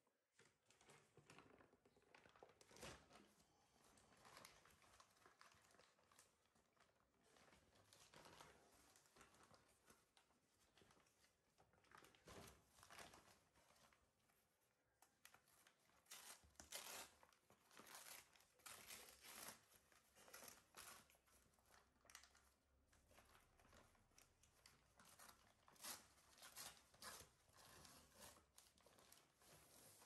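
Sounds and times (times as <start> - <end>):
paper bag ripping and crinkling: 16.0 - 21.1.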